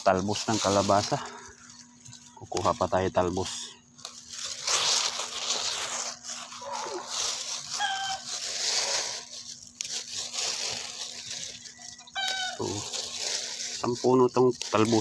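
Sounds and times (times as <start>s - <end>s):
leaves rustling: 0.0s - 15.0s
plastic bag crinkling: 0.0s - 15.0s
animal calls: 6.5s - 9.1s, 11.5s - 13.2s.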